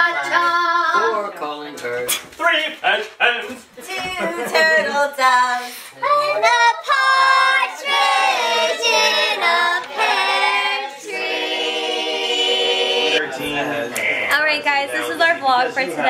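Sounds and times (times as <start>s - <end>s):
people singing together: 4.0s - 14.2s.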